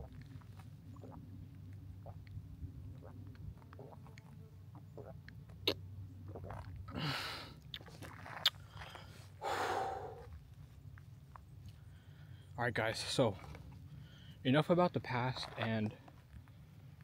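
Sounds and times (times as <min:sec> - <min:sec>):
low steady rumble: 0:00.0 - 0:17.0
person breathing hard: 0:08.6 - 0:10.4.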